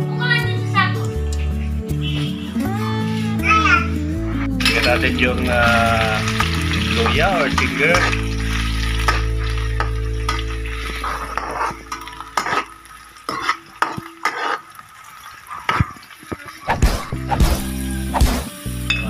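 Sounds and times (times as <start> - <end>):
ginger sizzling in oil: 4.6 - 19.0
spatula scraping a wok: 6.3 - 14.8.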